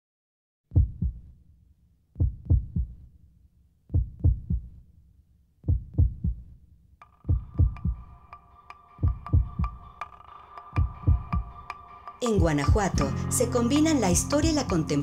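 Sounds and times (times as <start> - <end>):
deep heartbeat-like thumps: 0.7 - 1.4, 2.2 - 3.1, 3.9 - 4.8, 5.6 - 6.5, 7.3 - 8.1, 9.0 - 9.9, 10.8 - 11.6, 12.3 - 13.3.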